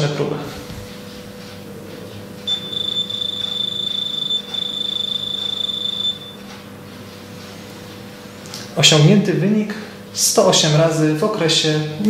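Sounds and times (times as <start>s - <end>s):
rapid scanner beeps: 2.5s - 6.4s.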